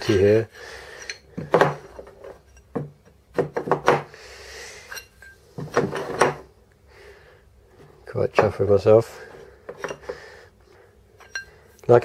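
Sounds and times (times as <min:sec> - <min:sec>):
plates knocking on wooden table: 0:01.4 - 0:02.0, 0:02.7 - 0:04.1.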